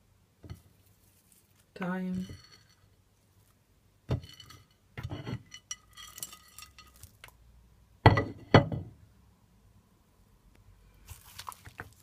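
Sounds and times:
dishware and utensils clinking: 0:02.1 - 0:02.9, 0:04.1 - 0:07.2.

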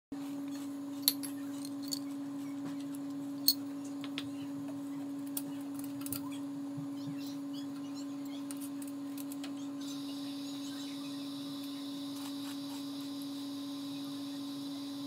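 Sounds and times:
steady low hum: 0:00.2 - 0:15.0.

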